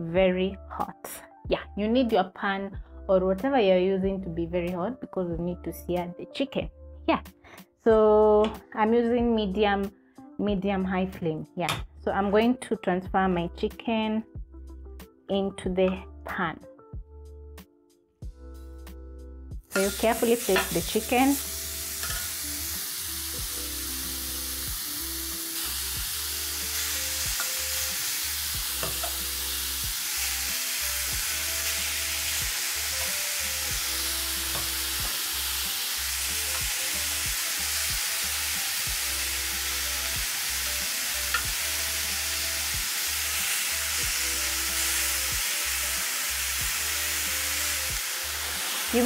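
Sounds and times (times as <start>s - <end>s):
soft background music with bass: 0.0s - 49.0s
chicken sizzling in grill pan: 19.7s - 49.0s.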